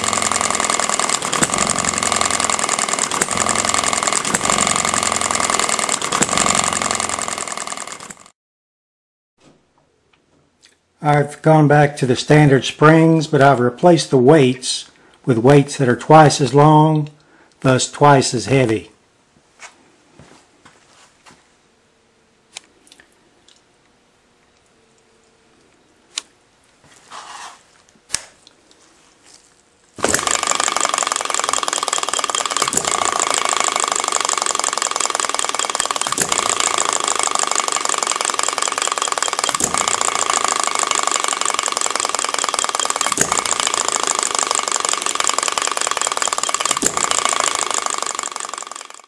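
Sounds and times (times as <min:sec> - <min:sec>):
engine knock: 0:00.0 - 0:08.3, 0:30.0 - 0:49.0
hit-and-miss engine clattering: 0:00.0 - 0:08.3, 0:30.0 - 0:49.0.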